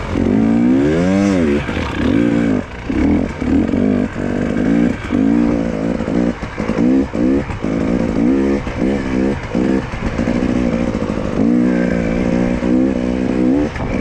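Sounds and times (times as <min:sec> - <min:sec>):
motorcycle engine revving: 0:00.0 - 0:14.0.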